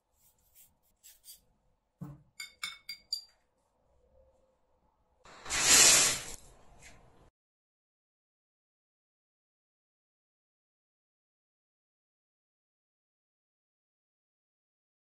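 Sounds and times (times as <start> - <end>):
stick clinking against ceramic bowl: 2.0 - 3.4.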